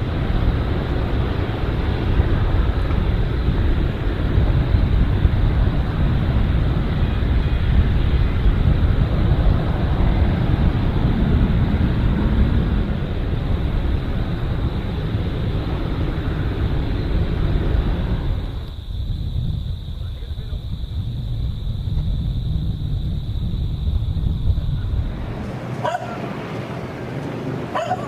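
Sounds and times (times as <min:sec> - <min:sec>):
jet engines at takeoff: 0:00.0 - 0:28.0.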